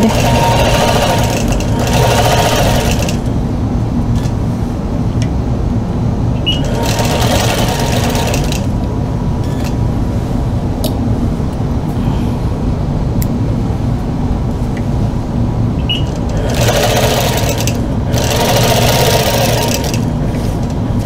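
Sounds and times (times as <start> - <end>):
quilting machine stitching: 0.0 - 3.3, 6.5 - 8.8, 16.0 - 20.2
steady low hum: 0.0 - 21.0.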